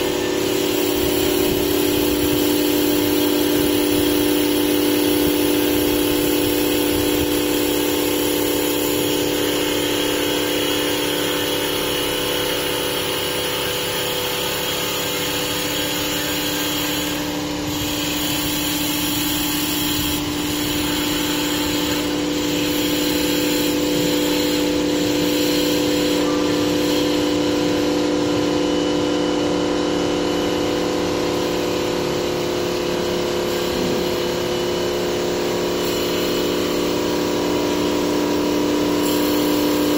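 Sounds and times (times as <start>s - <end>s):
hiss of cutting wood: 0.0s - 27.8s, 39.0s - 39.9s.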